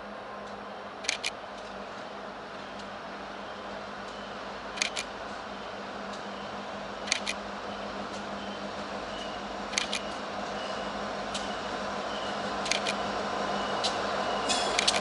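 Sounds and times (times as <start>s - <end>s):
diesel freight train rumble: 0.0s - 15.0s
sharp double click: 4.8s - 5.1s, 9.7s - 10.1s, 12.7s - 13.0s.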